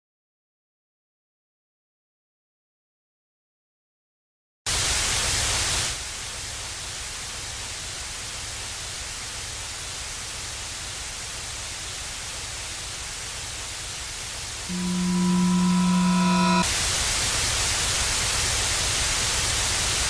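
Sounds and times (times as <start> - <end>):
tape hiss: 14.4 - 16.7.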